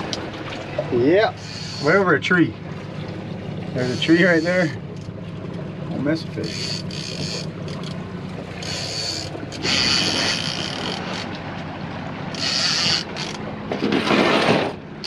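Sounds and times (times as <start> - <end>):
boat motor humming: 0.0 - 15.0
fishing reel clickers buzzing: 1.4 - 2.0, 6.4 - 11.3, 12.3 - 13.4.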